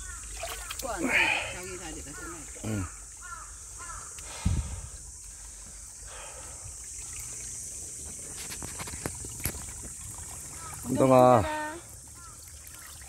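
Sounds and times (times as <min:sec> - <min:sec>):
short calls: 0:00.0 - 0:05.0
steady high hiss: 0:01.5 - 0:11.8
low thump on microphone: 0:04.4 - 0:04.8.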